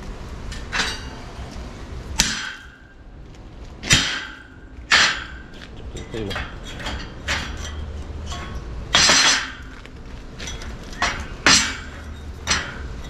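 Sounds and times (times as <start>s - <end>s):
metal-on-metal knocks: 2.2s - 3.0s, 3.8s - 13.0s.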